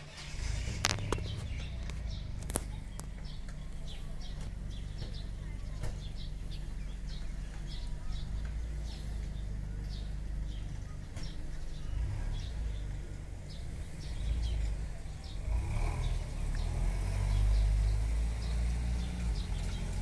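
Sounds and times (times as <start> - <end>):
steady low rumble: 0.0 - 15.7
small birds chirping: 0.0 - 20.0
sharp clicks: 0.6 - 3.6.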